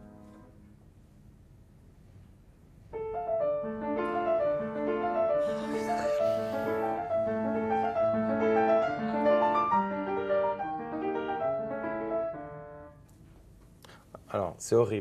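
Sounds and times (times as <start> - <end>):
upright piano melody: 3.0 - 13.0.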